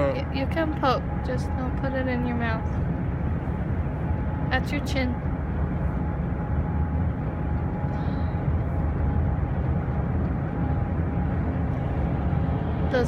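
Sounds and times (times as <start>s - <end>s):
car cabin road rumble: 0.0s - 13.0s
faint steady hum: 0.0s - 13.0s.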